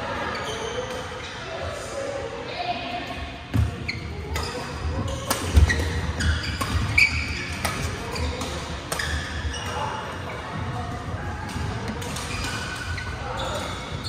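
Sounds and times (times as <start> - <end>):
rackets hitting shuttlecock: 3.5 - 9.8, 11.4 - 14.0
sneakers squeaking on court: 3.5 - 14.0.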